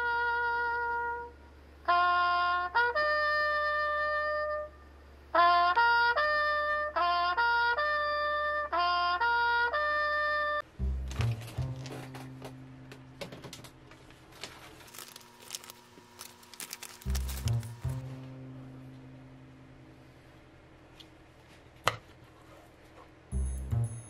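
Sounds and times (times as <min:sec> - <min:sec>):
steady low bass tone: 0:10.6 - 0:13.0, 0:17.1 - 0:20.1, 0:23.3 - 0:24.0.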